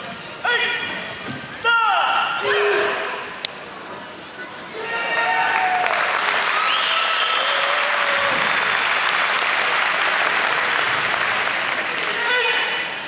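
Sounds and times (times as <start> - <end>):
audience applauding: 5.5 - 12.2.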